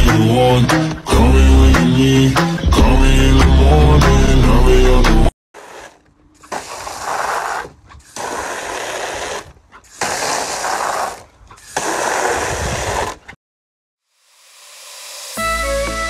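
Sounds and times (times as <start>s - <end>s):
hose water spraying on plastic pool: 5.6s - 13.3s, 14.0s - 15.4s.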